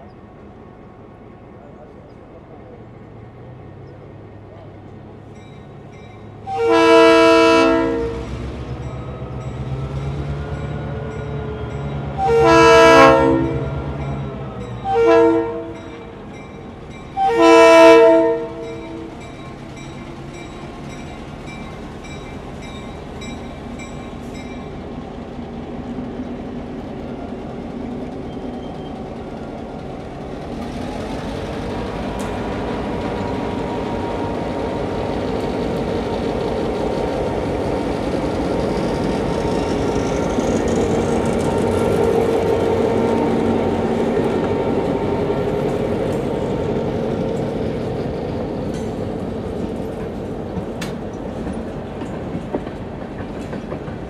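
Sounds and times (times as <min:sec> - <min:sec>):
locomotive engine and wheels rumbling: 0:00.0 - 0:54.0
locomotive horn blasts: 0:06.4 - 0:08.3, 0:12.2 - 0:13.8, 0:14.8 - 0:15.9, 0:17.2 - 0:19.1.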